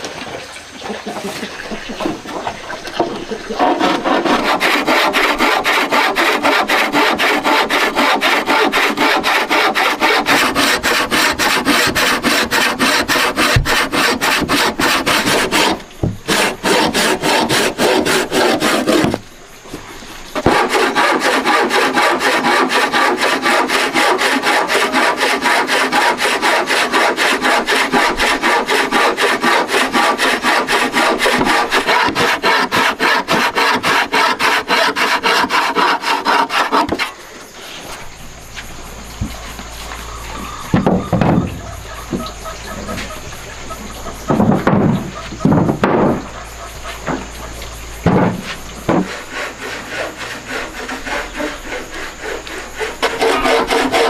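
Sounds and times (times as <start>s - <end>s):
hand saw cutting wood: 3.0s - 19.2s, 20.4s - 37.2s, 44.0s - 54.0s.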